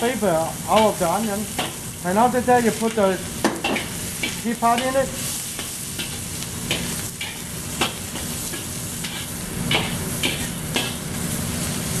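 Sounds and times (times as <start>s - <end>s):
vegetables sizzling in a wok: 0.0s - 12.0s
metal spatula scraping a wok: 6.0s - 11.1s.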